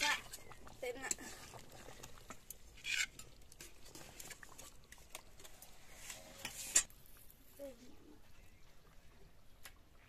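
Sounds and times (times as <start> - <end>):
metal spatula scraping curry: 2.6 - 4.7, 5.4 - 6.9.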